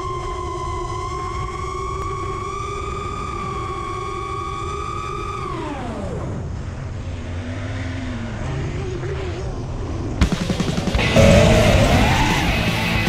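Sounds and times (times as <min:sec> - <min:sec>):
drone motors whining: 0:00.0 - 0:07.1, 0:11.0 - 0:13.0
rushing noise: 0:11.0 - 0:13.0.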